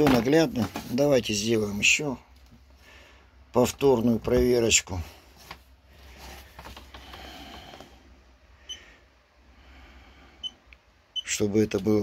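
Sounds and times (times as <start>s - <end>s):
low steady hum: 0.0s - 12.0s
faint rustle of handling: 3.6s - 8.0s.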